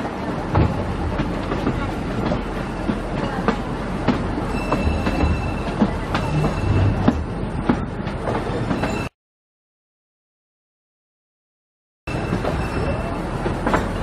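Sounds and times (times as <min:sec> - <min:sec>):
train coaches rumbling: 0:00.0 - 0:09.1, 0:12.1 - 0:14.0
high wheel squeal: 0:04.5 - 0:07.0.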